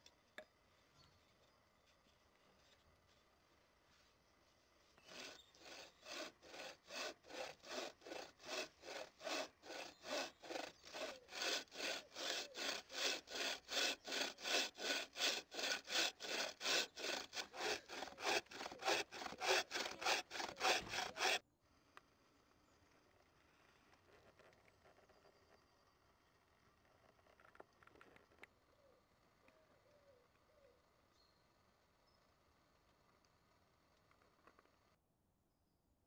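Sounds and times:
saw cutting through log: 5.0s - 21.4s.

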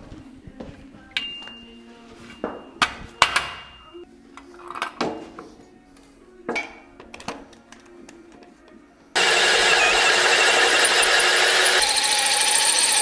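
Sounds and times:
background music: 0.0s - 9.6s
metallic clanks with ringing: 1.2s - 1.8s.

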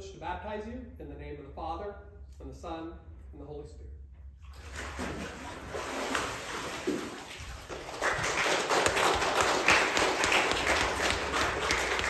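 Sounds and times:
water splashing in a pool: 4.4s - 12.0s
congregation applauding: 7.6s - 12.0s.

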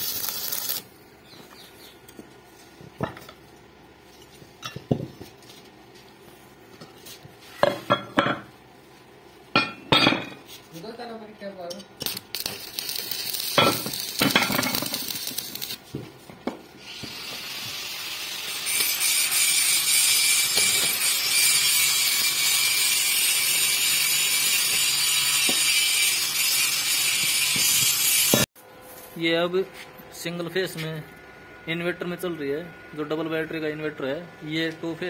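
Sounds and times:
welding arc cracks: 0.0s - 0.9s, 12.0s - 15.8s, 17.0s - 28.4s
welding arc frying crackle: 0.0s - 1.6s, 11.8s - 29.3s.

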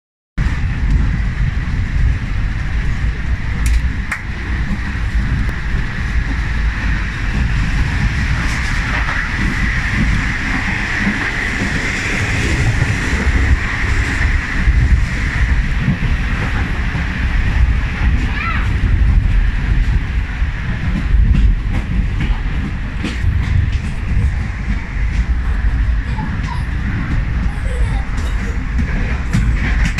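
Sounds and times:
train wheels rumbling on track: 0.4s - 29.9s.

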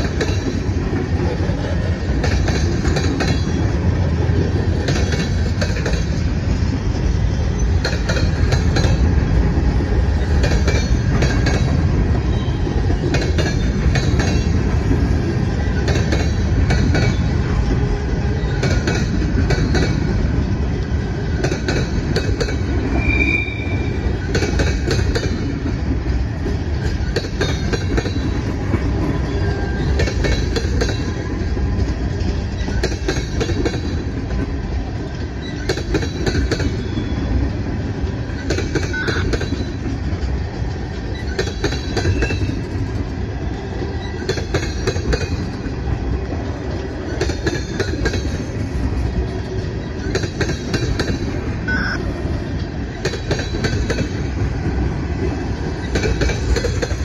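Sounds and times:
wheels clicking over rail joints: 0.0s - 22.9s, 24.1s - 51.5s, 52.3s - 57.0s
rumble of train wheels on rail: 0.0s - 57.0s
high wheel squeal: 22.8s - 24.2s, 36.6s - 37.4s.

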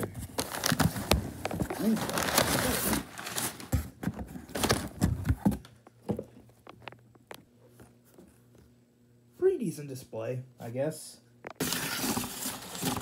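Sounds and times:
packing paper rustling: 0.0s - 5.6s, 11.6s - 13.0s.

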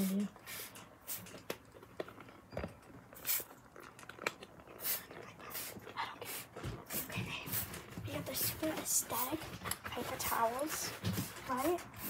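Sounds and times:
spray bottle squirting: 0.0s - 1.4s, 3.2s - 3.6s, 4.8s - 7.7s.

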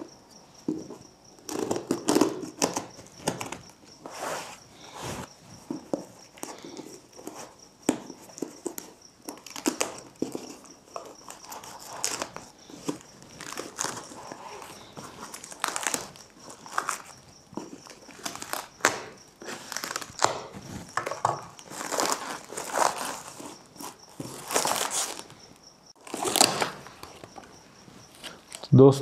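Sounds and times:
plastic film crinkling: 8.4s - 25.3s, 26.0s - 27.4s
knife cutting plastic wrap: 17.8s - 25.3s, 26.0s - 26.8s.

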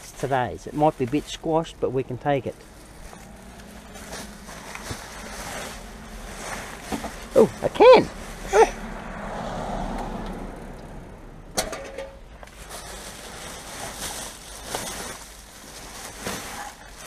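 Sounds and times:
plastic bags rustling: 0.0s - 8.8s, 12.2s - 17.0s.

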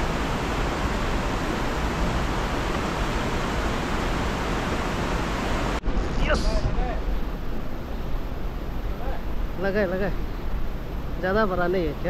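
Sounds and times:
river rapids rushing over boulders: 0.0s - 8.7s.

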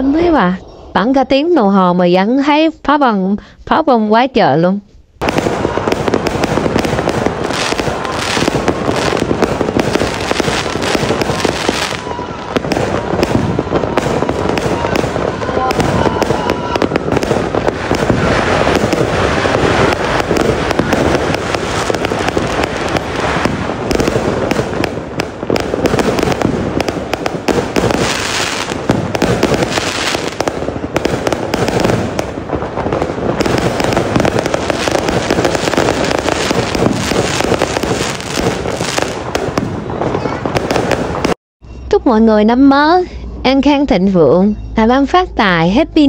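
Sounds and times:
fireworks bursting and crackling: 5.2s - 41.4s.

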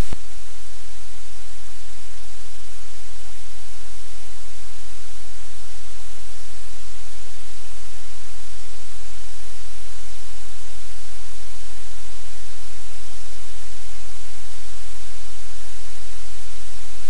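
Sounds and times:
low electrical hum: 0.0s - 17.0s
static hiss: 0.0s - 17.0s.

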